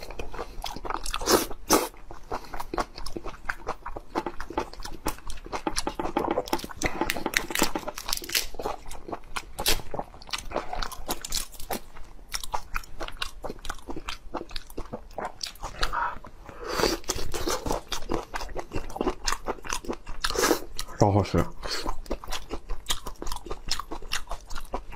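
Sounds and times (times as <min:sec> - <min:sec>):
wet chewing and sucking: 0:00.0 - 0:20.9
breathy mouth sound: 0:15.7 - 0:17.2.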